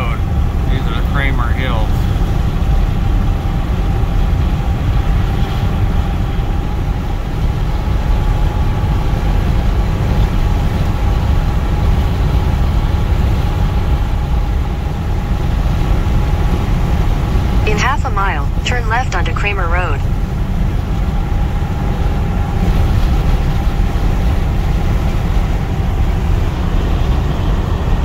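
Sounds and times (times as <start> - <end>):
car road and engine rumble: 0.0 - 28.0
faint steady hum: 0.0 - 28.0.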